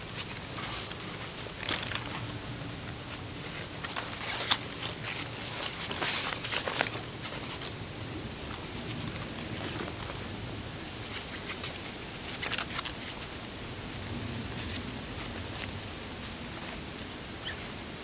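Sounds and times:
nylon fabric rustling and flapping: 0:00.0 - 0:13.4
dry leaves crackling: 0:00.0 - 0:17.8.

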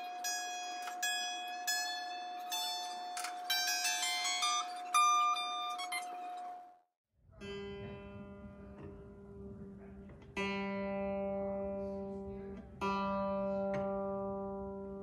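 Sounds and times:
piano string plucked: 0:07.4 - 0:15.0.

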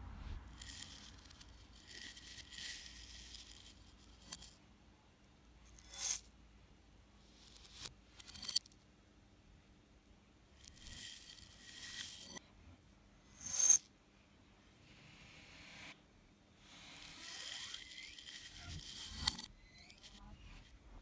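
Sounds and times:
dry cereal rustling and rattling: 0:00.5 - 0:03.9.

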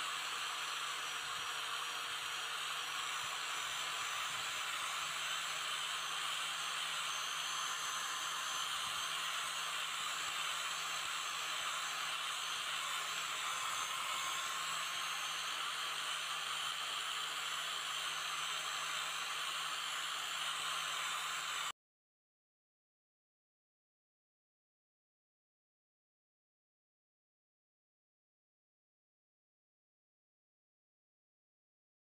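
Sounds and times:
angle grinder grinding metal: 0:00.0 - 0:21.7.

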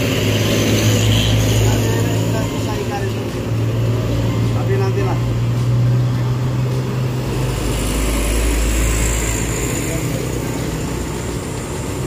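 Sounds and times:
truck driving past: 0:00.0 - 0:12.0.

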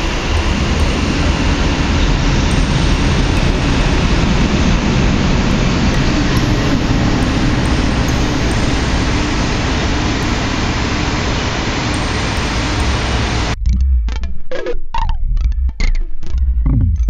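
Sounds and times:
electronic noise hiss: 0:00.0 - 0:13.6.

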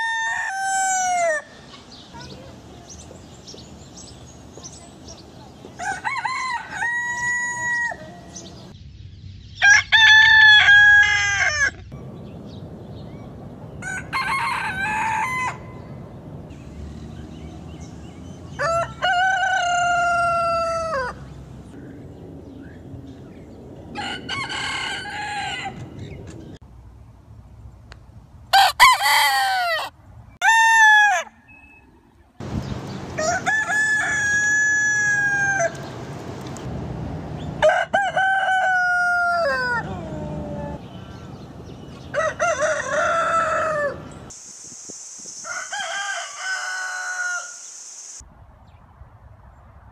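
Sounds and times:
roosters crowing: 0:00.0 - 0:01.6, 0:05.8 - 0:08.7, 0:09.6 - 0:11.9, 0:13.8 - 0:16.0, 0:17.4 - 0:21.4, 0:23.9 - 0:26.1, 0:28.5 - 0:31.5, 0:33.1 - 0:36.1, 0:37.5 - 0:40.9, 0:41.9 - 0:44.3, 0:45.4 - 0:47.6
background hiss: 0:44.0 - 0:48.2.

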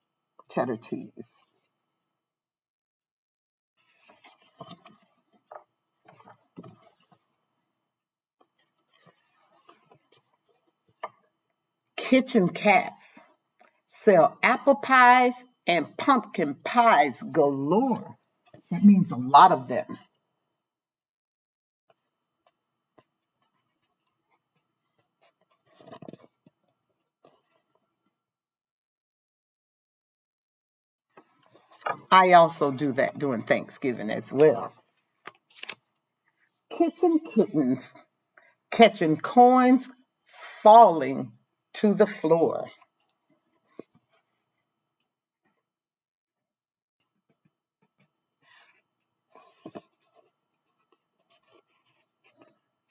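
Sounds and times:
book pages rustling: 0:03.8 - 0:07.5, 0:08.4 - 0:11.4, 0:21.9 - 0:28.2, 0:34.1 - 0:36.6, 0:42.7 - 0:45.6, 0:47.2 - 0:52.9.

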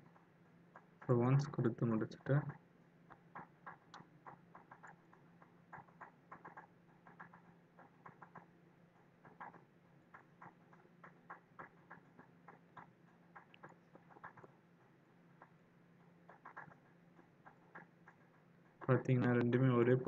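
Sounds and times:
low steady hum: 0:00.0 - 0:20.0
computer mouse clicks: 0:02.5 - 0:08.5.

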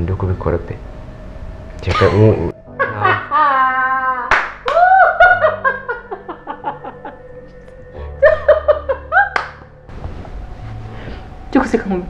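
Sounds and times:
woman laughing hard: 0:01.9 - 0:07.3, 0:08.2 - 0:09.4
sharp clap: 0:04.3 - 0:04.9, 0:09.4 - 0:09.7.

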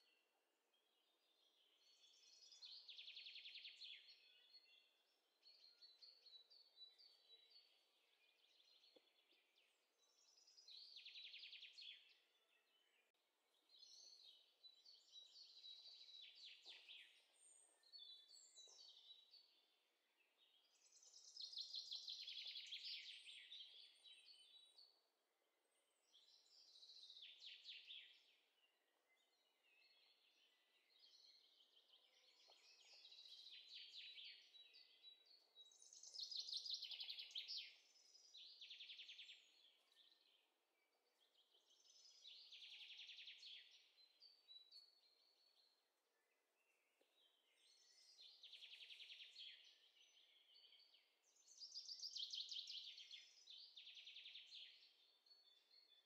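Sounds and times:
faint songbirds singing: 0:00.0 - 0:56.0.

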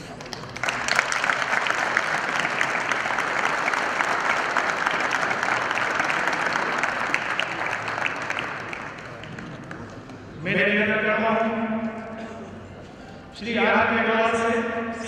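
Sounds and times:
crowd applauding: 0:00.0 - 0:10.4.

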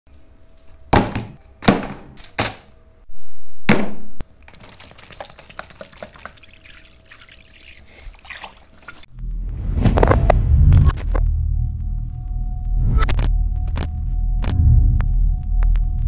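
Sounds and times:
water pouring into plastic basin: 0:04.4 - 0:09.1.

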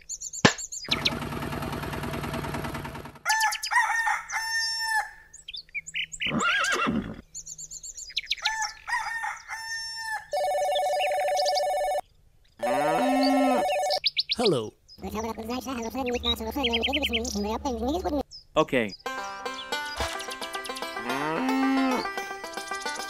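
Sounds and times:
birds chirping and whistling: 0:00.0 - 0:01.2, 0:04.6 - 0:08.9, 0:13.0 - 0:23.0
rooster crowing: 0:03.2 - 0:05.3, 0:08.4 - 0:10.4
electronic ringing: 0:10.4 - 0:12.0, 0:13.5 - 0:14.0.

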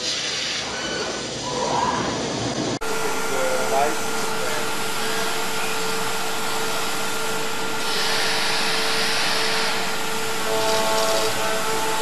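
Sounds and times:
machine whir and hum: 0:02.2 - 0:12.0.

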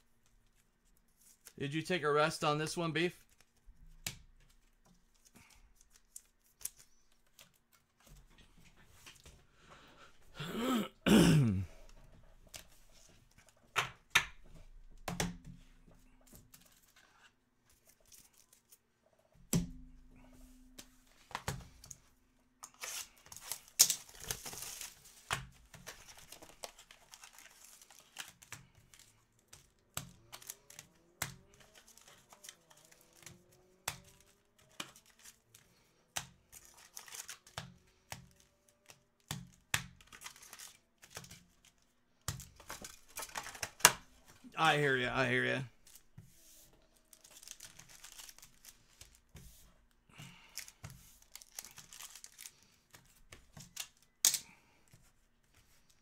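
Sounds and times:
card packs tapping and rustling: 0:22.6 - 0:35.4, 0:36.2 - 0:46.2, 0:47.1 - 0:49.4, 0:50.5 - 0:55.1
foil packs tearing and crinkling: 0:22.7 - 0:29.0, 0:36.6 - 0:37.6, 0:47.1 - 0:49.2, 0:50.4 - 0:52.7.

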